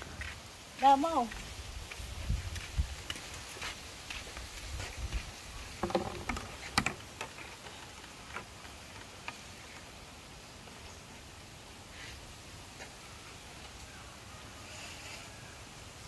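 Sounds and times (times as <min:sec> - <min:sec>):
plastic basket knocking on bamboo: 0:05.8 - 0:07.0.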